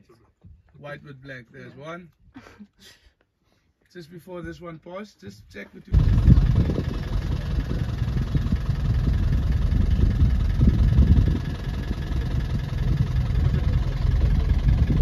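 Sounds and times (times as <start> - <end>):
vehicle engine idling: 6.0 - 15.0.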